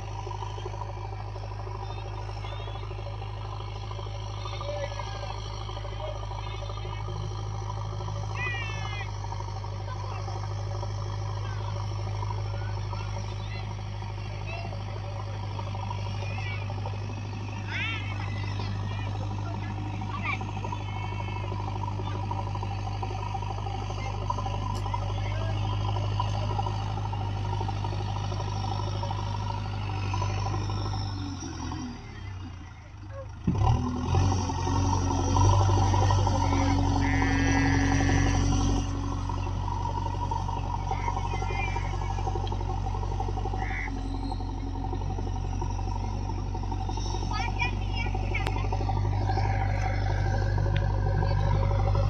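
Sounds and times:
backhoe diesel engine droning: 0:00.0 - 0:52.0.

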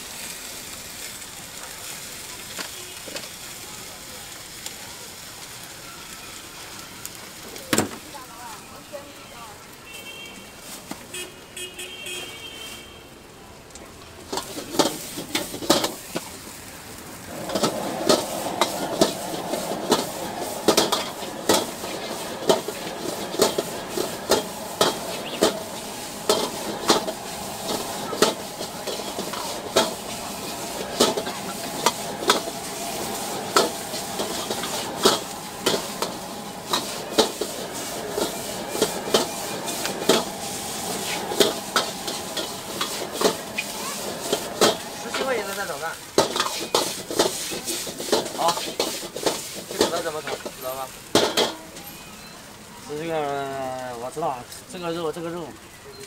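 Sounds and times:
food sizzling: 0:00.0 - 0:11.1, 0:13.2 - 0:56.0
metal ladle clanking in wok: 0:17.4 - 0:45.6.

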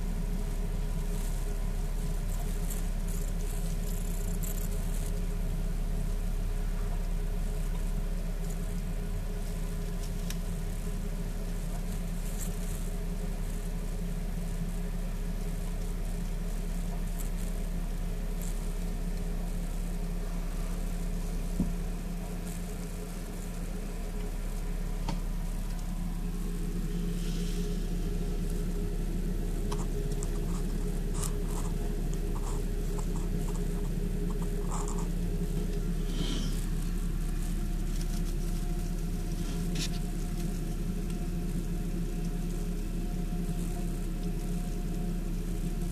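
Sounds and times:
low machine hum: 0:00.0 - 0:45.9
faint ticks: 0:06.7 - 0:20.1
paper bedding crackling and rustling: 0:14.8 - 0:45.9.

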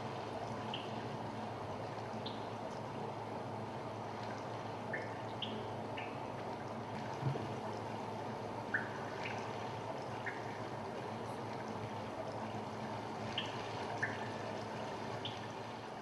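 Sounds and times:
water trickling: 0:00.0 - 0:16.0
water drops falling: 0:04.9 - 0:06.2, 0:08.7 - 0:09.5, 0:10.1 - 0:10.6, 0:13.3 - 0:14.4.

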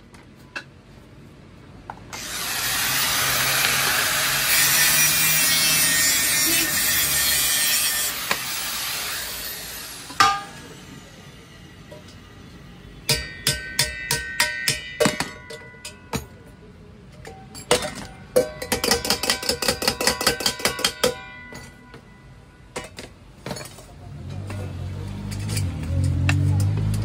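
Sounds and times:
metal strikes on steel pot: 0:10.2 - 0:10.6, 0:13.1 - 0:16.4, 0:17.7 - 0:21.7.

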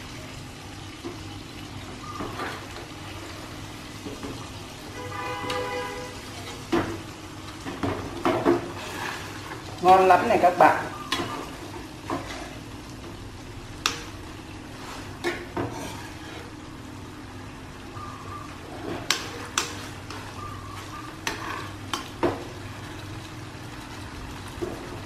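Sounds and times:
sauce sizzling in frying pan: 0:00.0 - 0:25.0.

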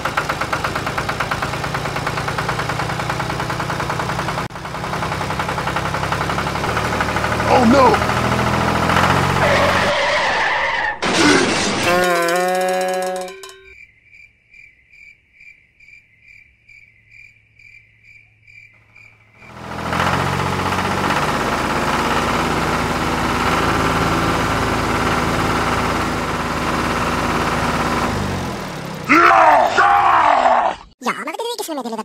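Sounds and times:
crickets chirping: 0:13.5 - 0:19.6.

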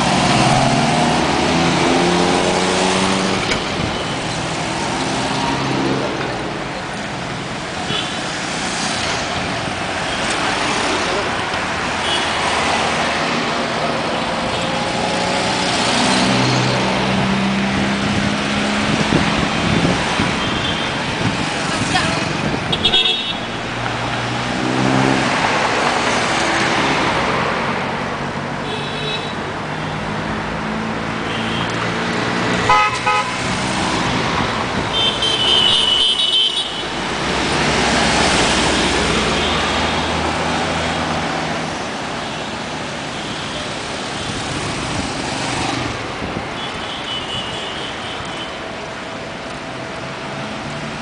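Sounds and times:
cars and motorcycles driving past: 0:00.0 - 0:28.8, 0:36.6 - 0:51.0
vehicle horns tooting: 0:22.7 - 0:23.6, 0:32.7 - 0:33.5, 0:34.9 - 0:37.0.

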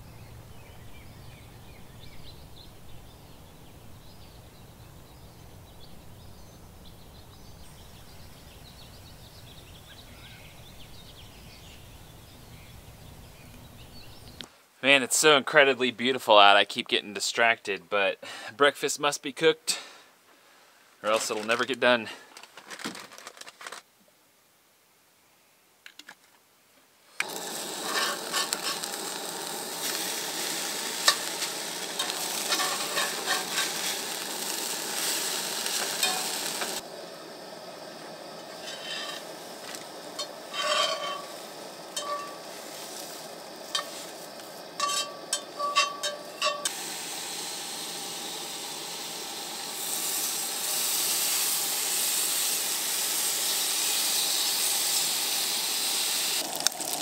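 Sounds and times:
utensil stirring in a pan: 0:27.2 - 0:36.8, 0:38.4 - 0:46.7
food sizzling in a pan: 0:27.2 - 0:57.0.

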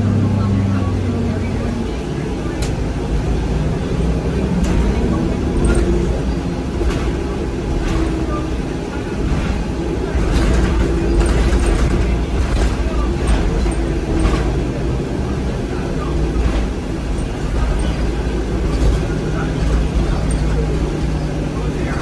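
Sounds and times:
bus engine and road rumble: 0:00.0 - 0:22.0
interior fittings rattling: 0:04.6 - 0:15.0.

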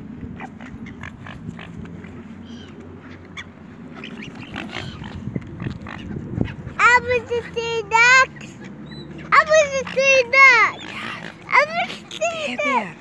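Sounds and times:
wind on microphone: 0:00.0 - 0:03.2, 0:03.8 - 0:09.1.

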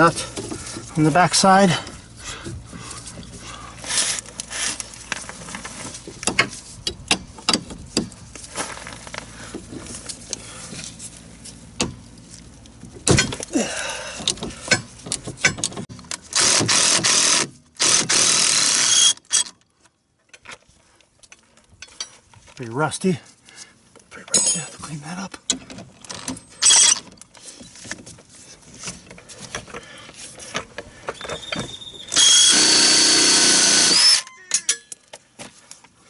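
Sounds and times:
cordless power tool whirring: 0:16.3 - 0:19.3, 0:32.1 - 0:34.3.

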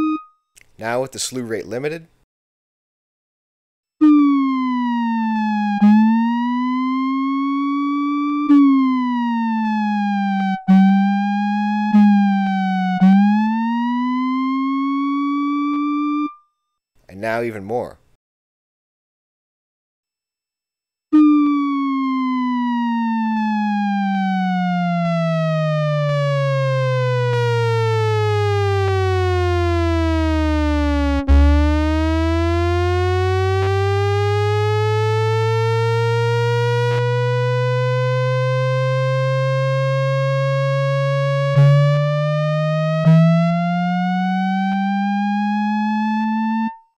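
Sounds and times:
gliding synthesizer tone: 0:00.0 - 0:00.3, 0:30.1 - 0:46.8.

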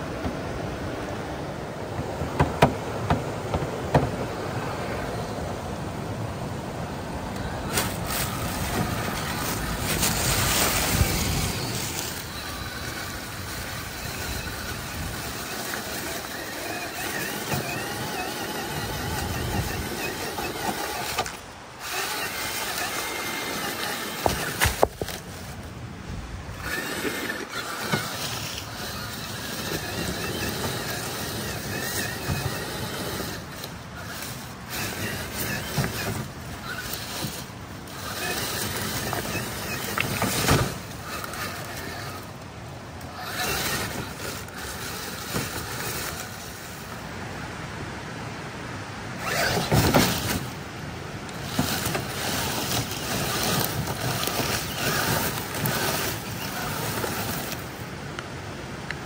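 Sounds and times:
electric motor whining: 0:07.2 - 0:47.0, 0:49.2 - 0:50.6, 0:51.3 - 0:57.9
dry leaves crunching: 0:07.4 - 0:25.7, 0:26.5 - 0:42.2, 0:43.1 - 0:46.8, 0:51.4 - 0:57.8
scrape and crunch: 0:07.7 - 0:13.5, 0:26.6 - 0:42.2, 0:51.4 - 0:57.6.

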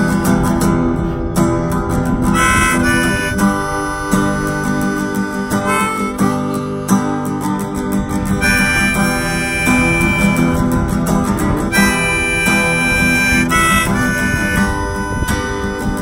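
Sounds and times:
harmonica melody: 0:00.0 - 0:01.2, 0:02.1 - 0:16.0
strummed acoustic guitar: 0:00.0 - 0:16.0.

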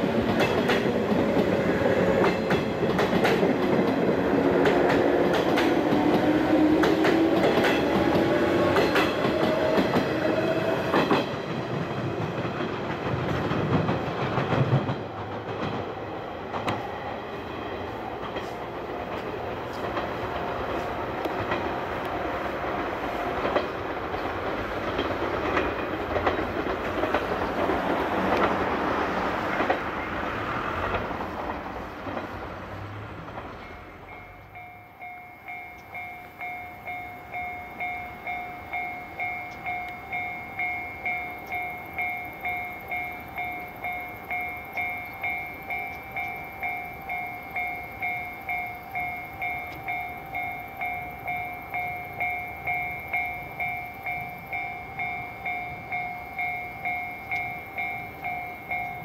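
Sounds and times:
train passing: 0:00.0 - 0:59.0
level crossing bell ringing: 0:34.1 - 0:59.0.

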